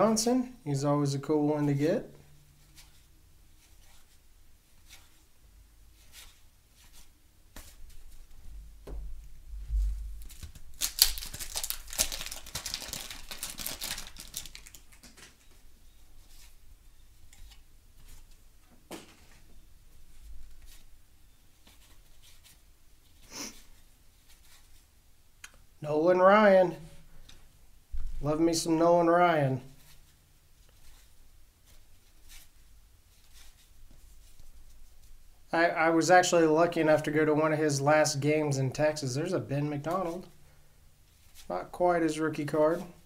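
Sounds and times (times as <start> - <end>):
wax paper wrapper crinkling: 10.0 - 15.6
cardboard cards being flipped: 10.2 - 15.6.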